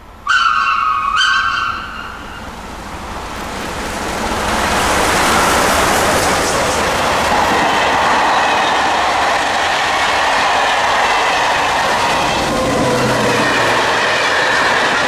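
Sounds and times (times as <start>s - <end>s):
train passing at speed: 0.0s - 15.0s
steam locomotive whistle blasts: 0.3s - 2.4s.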